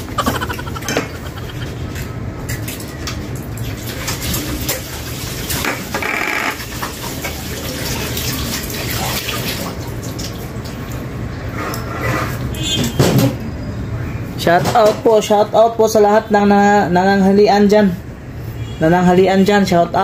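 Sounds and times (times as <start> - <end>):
running water: 0.0 - 11.5.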